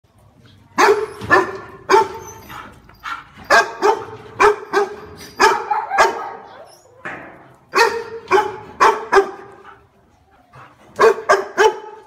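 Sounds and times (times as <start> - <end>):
dog barking: 0.8 - 2.2, 3.5 - 6.5, 7.7 - 9.6, 11.0 - 12.0.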